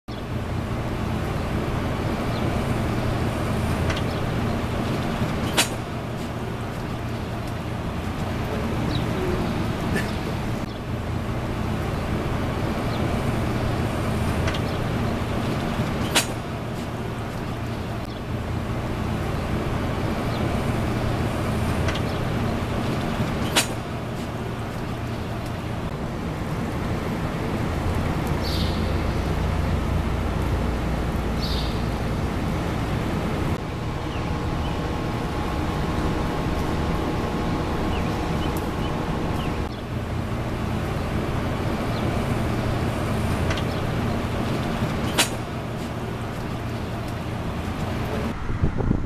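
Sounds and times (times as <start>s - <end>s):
low outdoor rumble: 0.1s - 49.0s.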